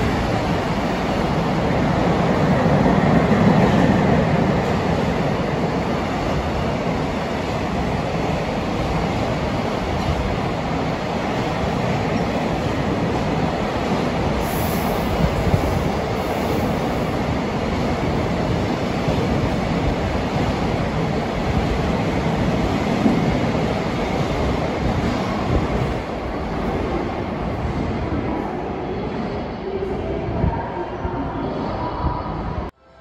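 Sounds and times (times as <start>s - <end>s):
train wheels on rails: 0.0s - 28.5s.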